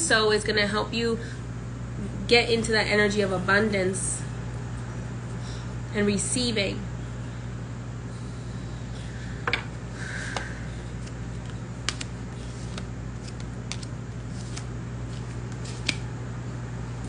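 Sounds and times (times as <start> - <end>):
cards being shuffled: 11.0 - 16.1.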